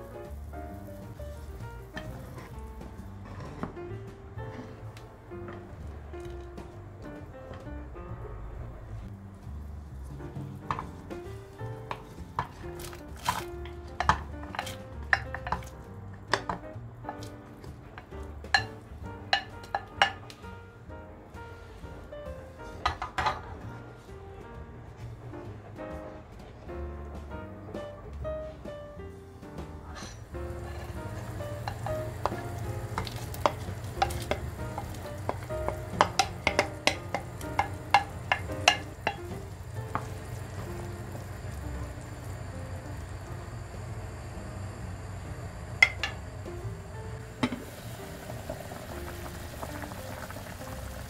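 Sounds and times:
soft background music: 0:00.0 - 0:51.0
wooden spoon stirring soup: 0:00.1 - 0:06.7, 0:09.4 - 0:15.7, 0:30.2 - 0:43.6
wooden spoon scraping a bowl: 0:02.0 - 0:03.8, 0:29.9 - 0:39.3
potatoes plopping into soup: 0:12.0 - 0:16.6.

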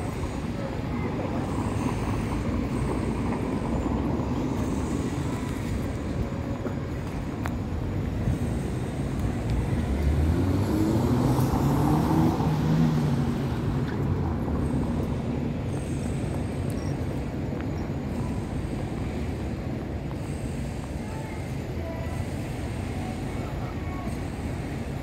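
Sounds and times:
street traffic: 0:00.0 - 0:25.0
vehicle engine passing close: 0:09.4 - 0:15.2.

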